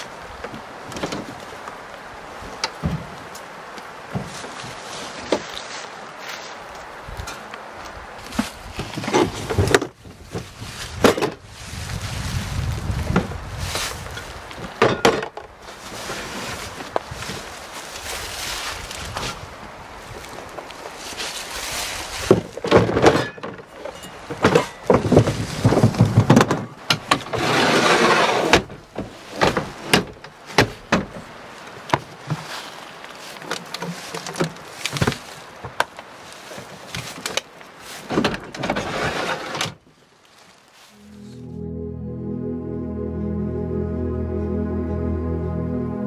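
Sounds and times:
storage drawers sliding: 22.7s - 30.7s, 38.1s - 39.8s.

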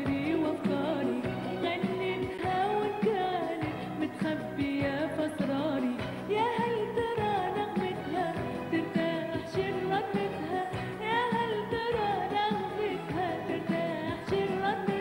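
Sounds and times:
pop backing music with steady beat: 0.0s - 15.0s
woman singing into microphone: 0.0s - 15.0s.

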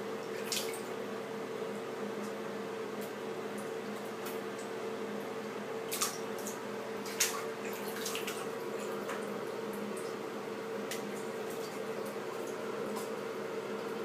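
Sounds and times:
steady low hum: 0.0s - 14.0s
water splashing and sloshing: 0.1s - 1.0s, 5.8s - 14.0s.

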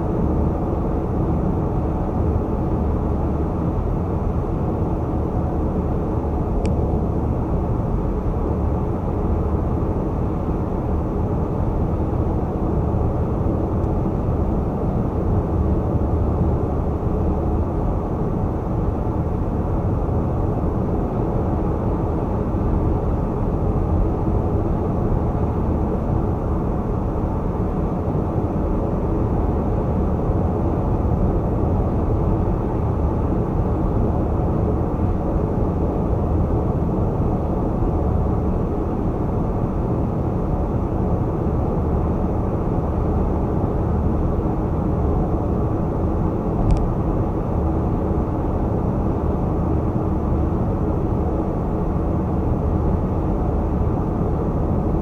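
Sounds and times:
short click: 46.6s - 46.9s.

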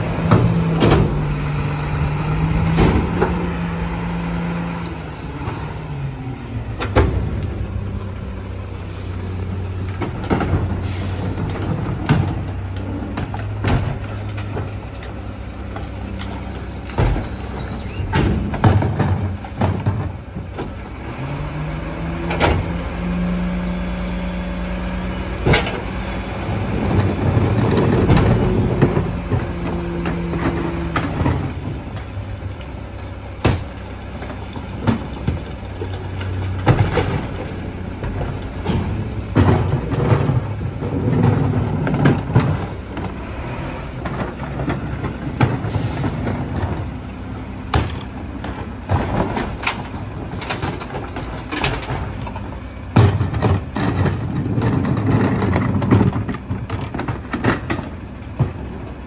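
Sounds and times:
truck engine revving: 0.0s - 19.6s, 20.7s - 48.8s
plastic carts banging on metal: 47.7s - 58.7s.

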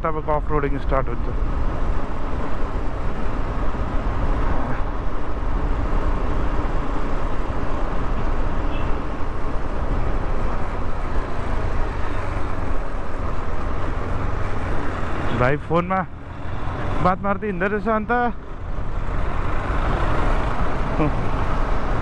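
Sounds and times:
road and wind rush: 0.0s - 22.0s
motorcycle engine: 1.4s - 22.0s.

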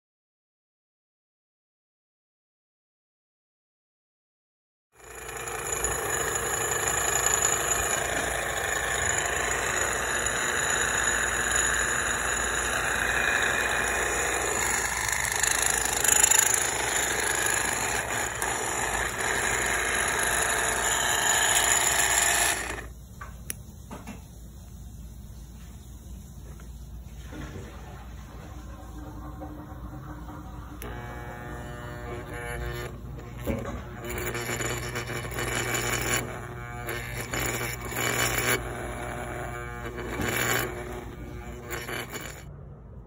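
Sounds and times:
small motor running with rattle: 5.0s - 22.9s, 30.0s - 42.5s.

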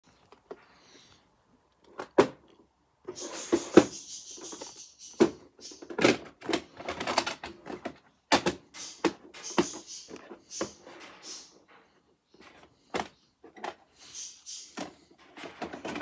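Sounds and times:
plastic scraping rustle: 5.7s - 8.0s.

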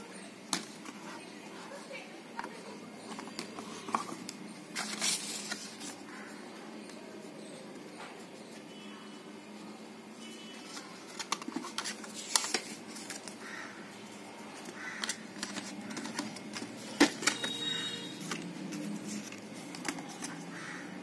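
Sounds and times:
clicks and taps handling a box: 2.4s - 5.7s, 10.7s - 13.4s, 14.6s - 20.4s.

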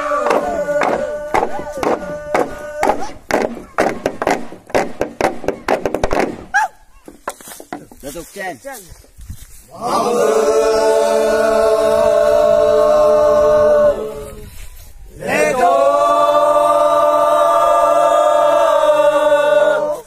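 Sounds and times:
young men chanting in unison: 0.0s - 3.2s, 9.7s - 14.4s, 15.1s - 20.0s.

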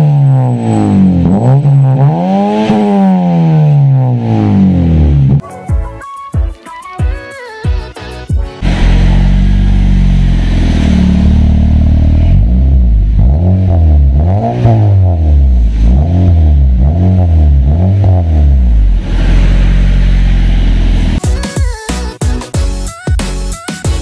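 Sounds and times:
engine revving: 0.0s - 5.4s, 8.6s - 21.2s
car engine idling: 8.6s - 21.2s.

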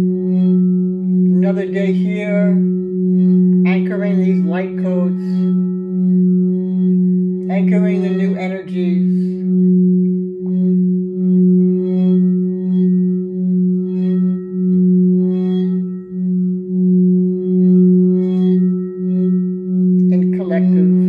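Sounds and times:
singing bowl sustained tone: 0.0s - 21.0s
person speaking: 1.4s - 2.7s, 3.6s - 5.5s, 7.5s - 9.4s, 20.0s - 21.0s.

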